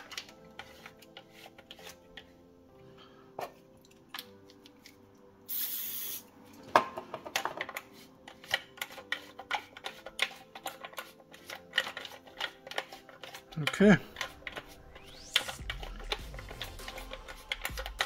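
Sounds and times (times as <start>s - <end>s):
aerosol spray hiss: 5.5s - 6.2s
plastic gear clicks and rattles: 15.3s - 18.0s.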